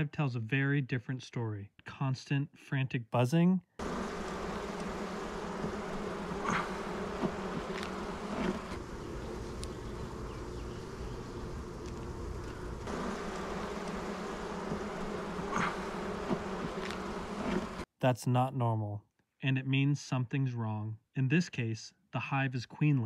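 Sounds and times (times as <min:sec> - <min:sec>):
bees buzzing in hive: 0:03.8 - 0:17.9
single bee passing close: 0:03.8 - 0:17.9.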